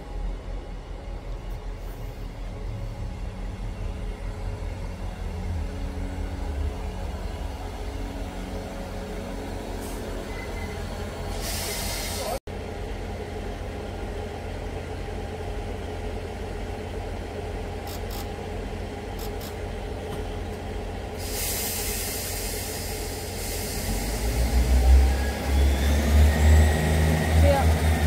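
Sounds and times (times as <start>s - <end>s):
diesel train engines idling: 0.0s - 28.0s
train engines powering away: 0.0s - 28.0s.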